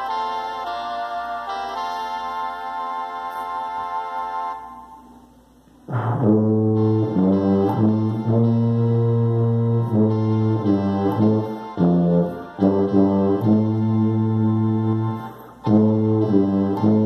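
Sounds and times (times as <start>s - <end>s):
tuba playing slow melody: 5.9s - 17.0s.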